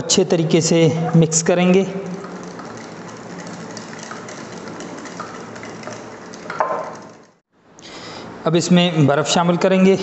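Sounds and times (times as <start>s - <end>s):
liquid swishing: 1.8s - 7.4s
spoon ticking against glass: 2.2s - 7.3s.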